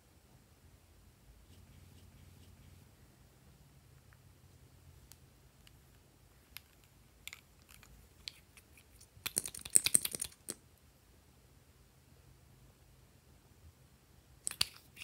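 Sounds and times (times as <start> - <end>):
rapid clicking of cap: 6.6 - 10.6, 14.5 - 15.0.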